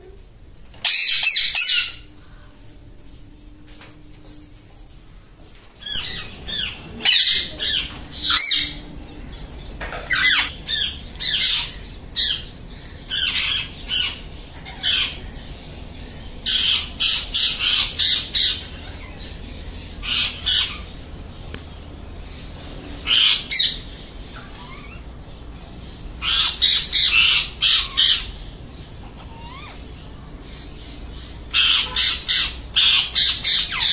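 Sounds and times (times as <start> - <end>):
parakeets calling: 0.7 - 2.1, 5.8 - 33.9.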